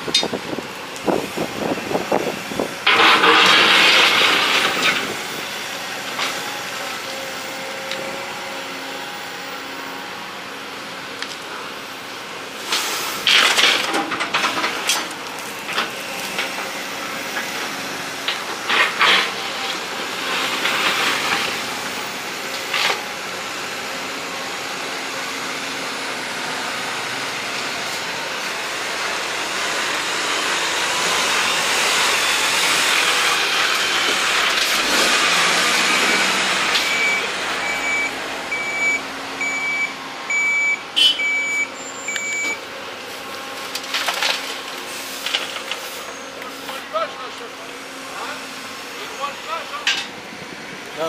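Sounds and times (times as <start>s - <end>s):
heavy diesel machinery running: 0.0s - 51.0s
reversing alarm beeping: 35.9s - 42.6s.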